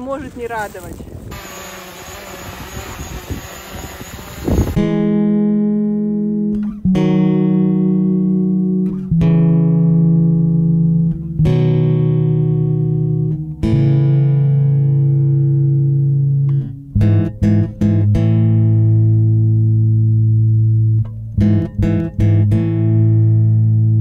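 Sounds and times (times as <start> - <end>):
slow sustained chords: 4.8 - 21.0.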